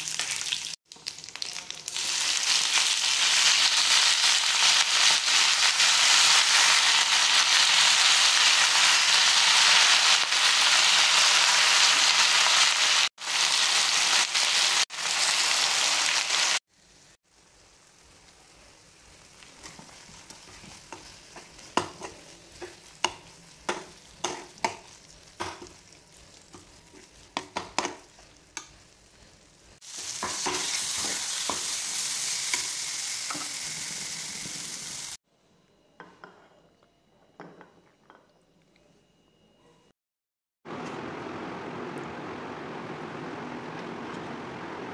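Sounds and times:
leaves sizzling in hot oil: 0.0s - 35.2s
steel spoon stirring in pan: 19.4s - 29.2s.

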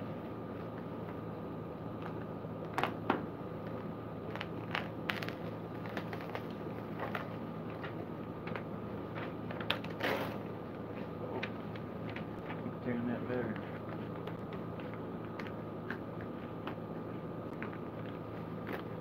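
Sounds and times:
steady background hum: 0.0s - 19.0s
packaging crinkling: 4.2s - 8.6s.

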